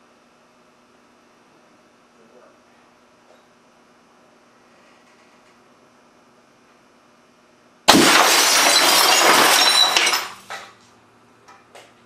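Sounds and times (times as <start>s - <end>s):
glass shards clinking: 7.9s - 10.7s
glass shattering crash: 7.9s - 10.7s.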